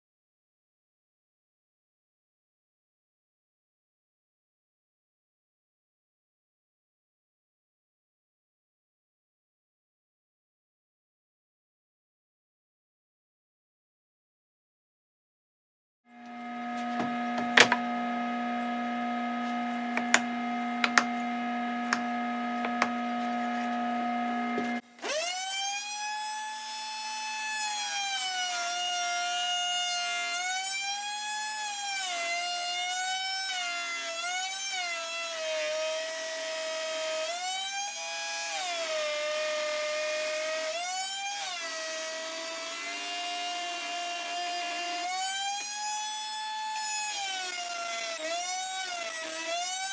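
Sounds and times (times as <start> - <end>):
router cutting wood under load: 16.1 - 49.9
router whine: 16.1 - 49.9.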